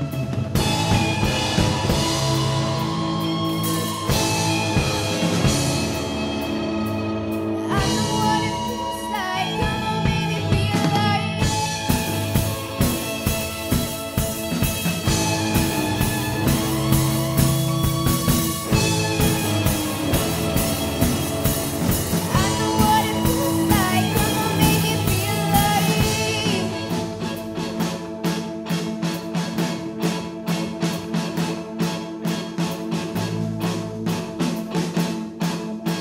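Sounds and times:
drum kit beat: 0.0 - 36.0
live rock band playing: 0.0 - 36.0
person singing: 7.4 - 13.4, 22.0 - 27.8.

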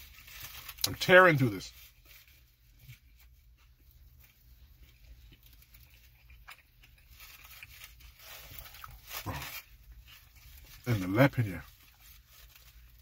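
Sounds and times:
low steady hum: 0.0 - 13.0
chewing mouth sounds: 4.9 - 9.7.

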